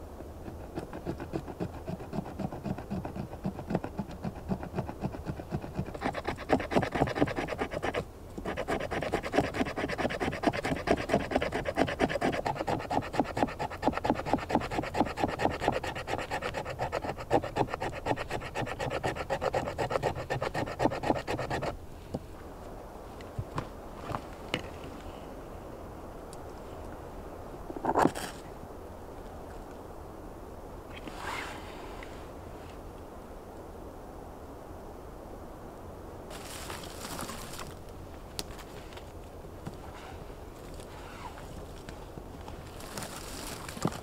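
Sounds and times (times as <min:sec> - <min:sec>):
knife shaving wood: 0:00.4 - 0:21.8.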